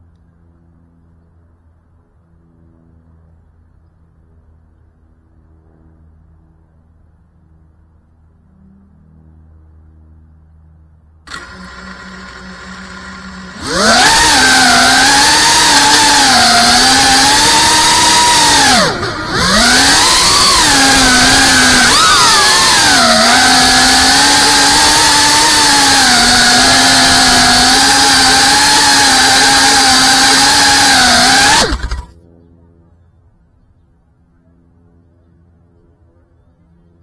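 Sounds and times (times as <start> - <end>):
quadcopter motors whining: 11.3 - 32.5.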